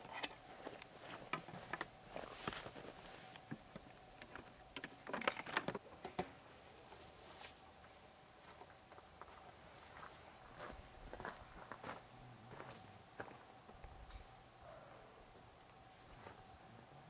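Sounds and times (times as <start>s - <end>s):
leaves rustling: 6.5s - 12.0s.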